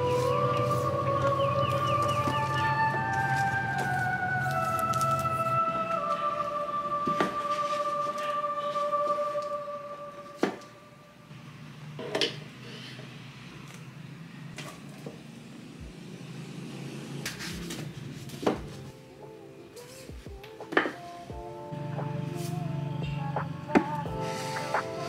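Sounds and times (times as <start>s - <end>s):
soft music: 0.0s - 11.7s, 17.5s - 25.0s.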